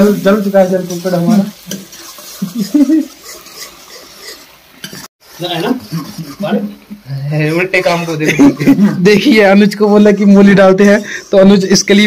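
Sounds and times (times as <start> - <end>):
food sizzling: 0.0 - 12.0
ladle scraping an iron pan: 1.7 - 6.5.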